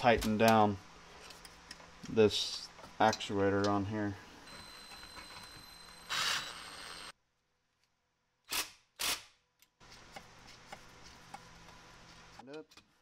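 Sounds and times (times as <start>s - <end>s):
cordless drill driving screws: 5.9s - 7.1s.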